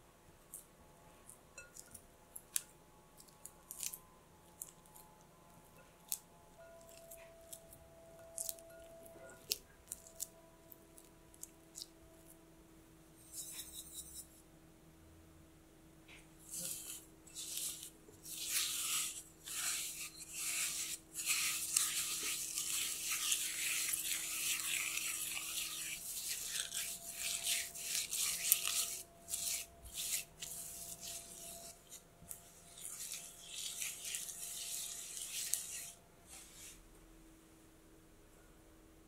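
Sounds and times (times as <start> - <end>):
spatula scraping sugar and butter: 13.2 - 14.4, 16.4 - 36.8.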